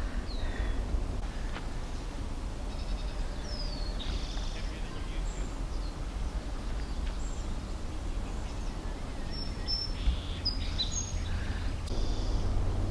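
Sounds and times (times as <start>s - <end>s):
small birds chirping: 0.0s - 12.9s
low rumble: 11.1s - 12.9s.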